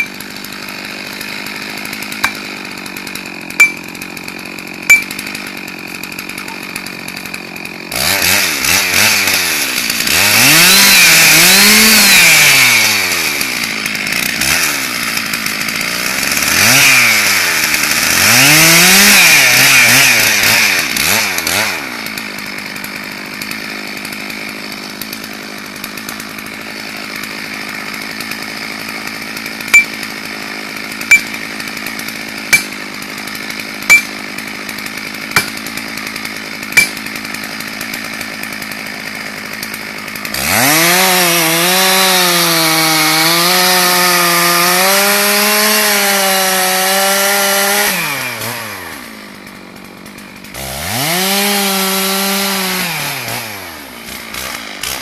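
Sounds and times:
chainsaw revving and idling: 0:00.0 - 0:55.0
sharp knocks: 0:03.6 - 0:03.9, 0:04.9 - 0:05.3, 0:31.1 - 0:31.5, 0:32.5 - 0:32.8, 0:33.9 - 0:34.2, 0:35.4 - 0:35.6, 0:36.8 - 0:37.0.

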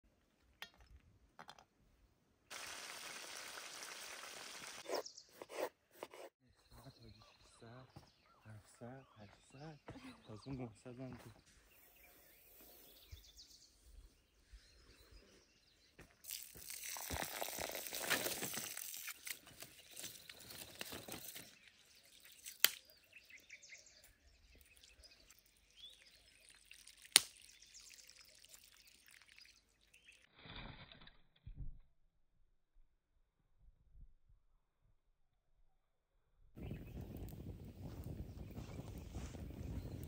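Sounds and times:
rice rinsing splashes: 0:02.5 - 0:04.8, 0:16.2 - 0:20.4, 0:24.5 - 0:30.3
water pouring into bowl: 0:16.3 - 0:19.1, 0:24.7 - 0:30.2.

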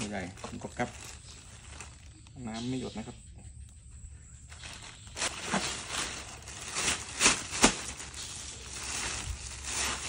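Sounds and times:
plastic bag crinkling: 0:00.0 - 0:02.4, 0:04.5 - 0:10.0.

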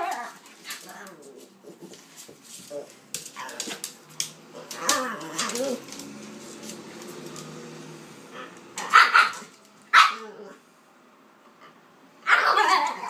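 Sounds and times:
dog growling: 0:04.5 - 0:06.2, 0:10.1 - 0:10.6
dog barking: 0:08.8 - 0:10.2.

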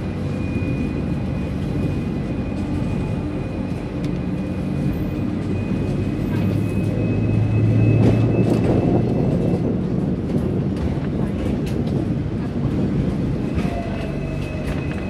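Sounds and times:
tram rumbling on rails: 0:00.0 - 0:15.0.

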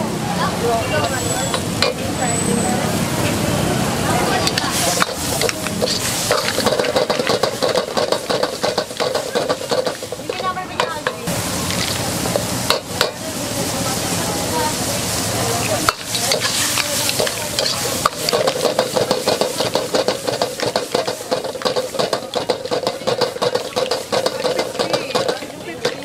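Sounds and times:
rice sizzling in a wok: 0:00.0 - 0:26.0
metal spatula scraping a wok: 0:04.4 - 0:12.6, 0:15.8 - 0:26.0.

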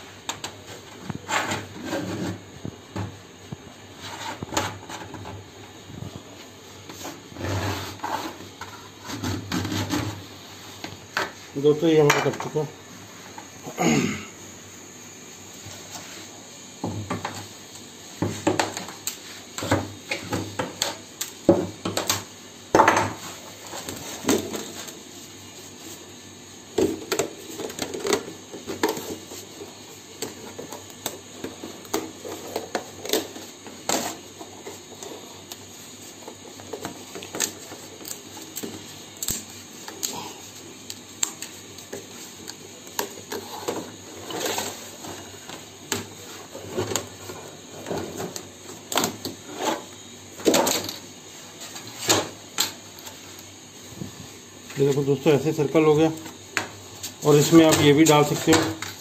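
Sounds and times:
scraping on laminate sheet: 0:01.1 - 0:02.5, 0:04.0 - 0:05.2, 0:06.9 - 0:10.2.

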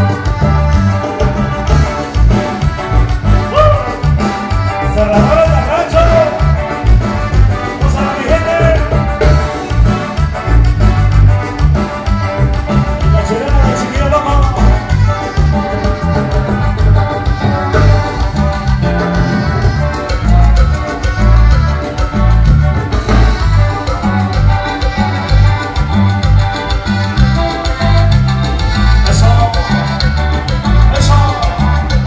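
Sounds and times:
heavy bass beat: 0:00.0 - 0:32.0
live band playing dance music: 0:00.0 - 0:32.0.

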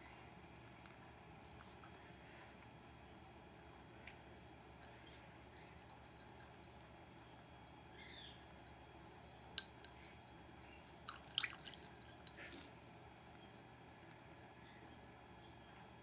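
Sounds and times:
faint drips and splashes: 0:09.4 - 0:12.8.

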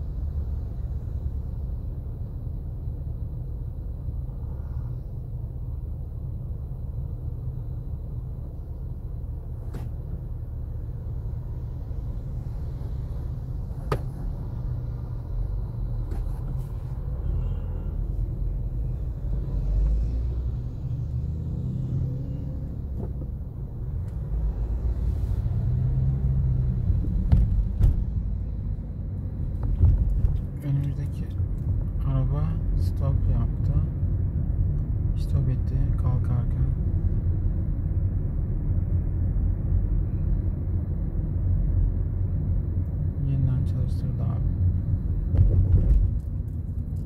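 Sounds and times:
car cabin rumble: 0:05.6 - 0:19.1, 0:22.8 - 0:25.1, 0:26.6 - 0:33.8, 0:43.6 - 0:47.0.

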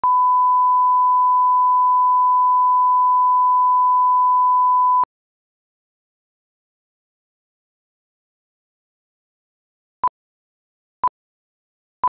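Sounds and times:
pure test tone beep: 0:00.0 - 0:05.1.

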